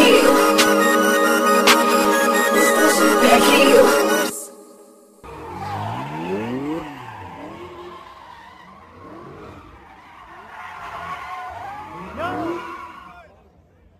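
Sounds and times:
car engine revving: 5.2s - 13.8s
tires screeching on pavement: 5.3s - 13.9s.

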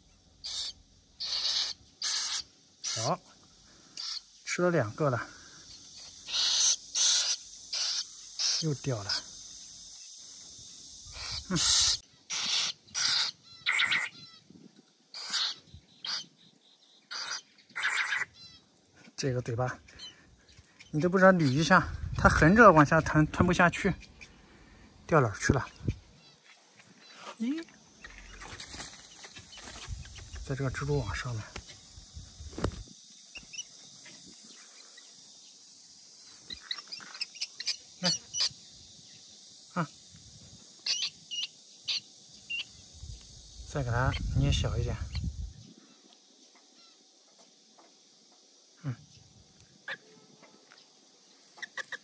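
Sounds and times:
bird harsh hissing begging calls: 0.0s - 18.7s, 19.9s - 25.0s, 28.0s - 47.2s, 51.5s - 52.0s
leaves and twigs rustling: 25.7s - 35.2s.

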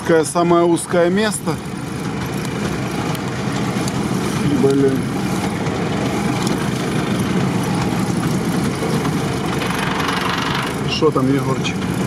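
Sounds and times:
engine running inside cab: 0.0s - 12.0s.

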